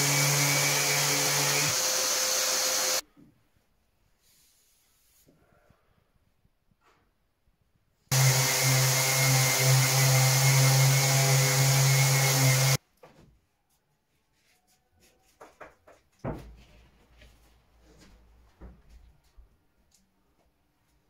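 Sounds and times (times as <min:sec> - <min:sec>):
electric orbital sander running: 0:00.0 - 0:03.0, 0:08.1 - 0:12.8.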